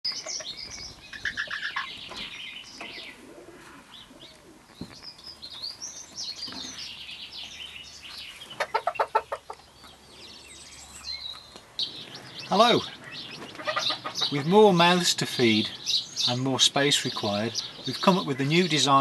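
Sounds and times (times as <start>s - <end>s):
chicks peeping: 0.0s - 19.0s
hen clucking: 0.1s - 4.5s, 8.4s - 10.0s, 12.0s - 15.0s.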